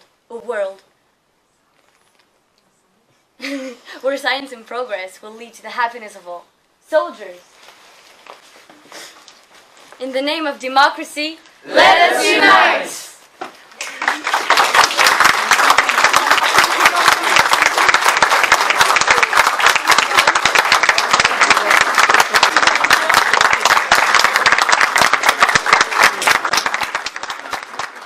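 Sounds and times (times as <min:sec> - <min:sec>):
audience applauding: 0:13.8 - 0:28.0.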